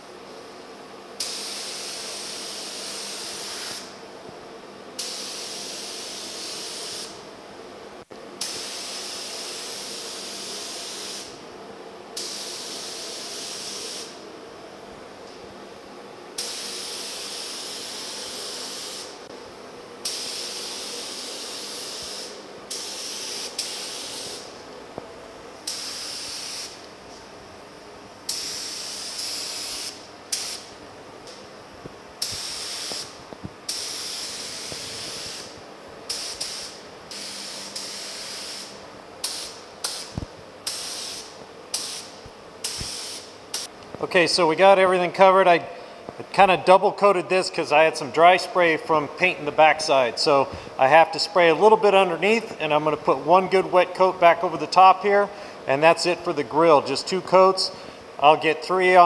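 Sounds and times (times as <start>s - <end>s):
spray gun hissing: 1.2s - 3.9s, 5.0s - 7.2s, 8.4s - 11.4s, 12.2s - 14.2s, 16.4s - 19.3s, 20.0s - 24.6s, 25.6s - 26.8s, 28.3s - 30.7s, 32.2s - 43.7s.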